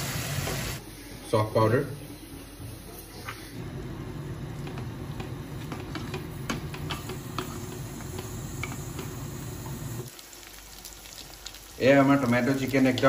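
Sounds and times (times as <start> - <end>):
sauce sputtering in a pan: 4.7 - 13.0.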